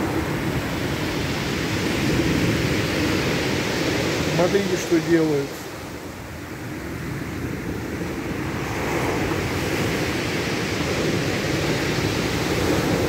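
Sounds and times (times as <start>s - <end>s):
surf washing up pebble beach: 0.0s - 13.0s.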